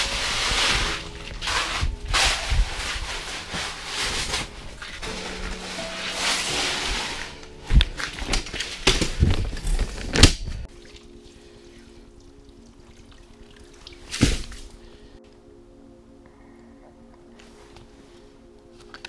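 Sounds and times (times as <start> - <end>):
soft ambient music: 0.0 - 19.0
water splashing and pouring: 10.7 - 14.8.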